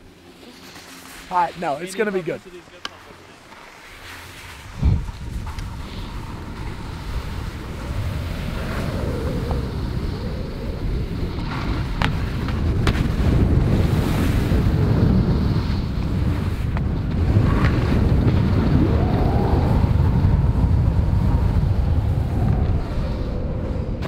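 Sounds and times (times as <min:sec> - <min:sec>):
skis sliding over snow: 0:00.0 - 0:23.3
wind rumbling on microphone: 0:03.5 - 0:24.0.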